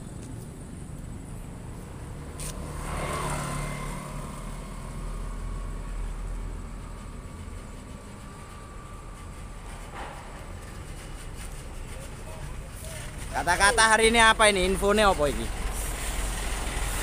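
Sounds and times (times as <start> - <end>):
motor scooter passing: 1.5 - 17.0
truck diesel engine rumble: 4.0 - 17.0.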